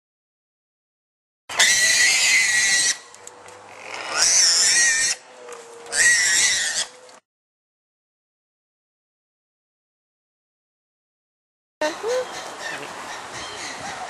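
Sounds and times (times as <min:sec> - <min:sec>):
high-pitched animal squeals: 0:01.5 - 0:03.1, 0:03.7 - 0:05.2, 0:05.9 - 0:07.0.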